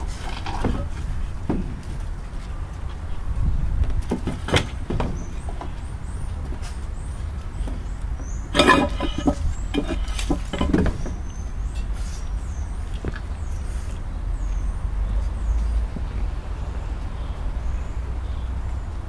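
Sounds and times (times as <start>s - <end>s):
steady low rumble: 0.0s - 4.1s.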